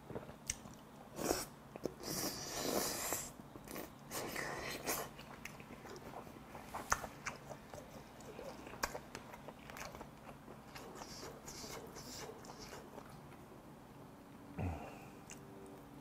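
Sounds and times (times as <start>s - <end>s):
man chewing with wet mouth sounds: 0.0s - 13.5s
short low vocal sound: 14.6s - 15.3s.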